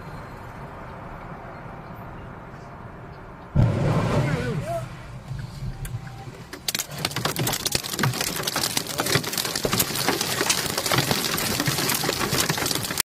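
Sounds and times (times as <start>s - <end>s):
debris pattering on car roof: 6.5s - 13.0s.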